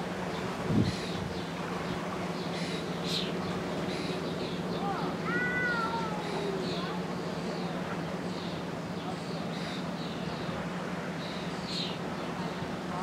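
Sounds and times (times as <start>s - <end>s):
steady low hum: 0.0s - 13.0s
small birds chirping: 0.3s - 10.6s.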